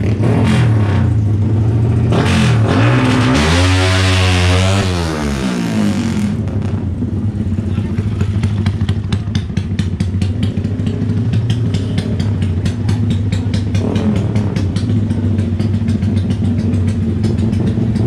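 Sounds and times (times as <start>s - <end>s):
motorcycle engine idling: 6.3s - 18.0s.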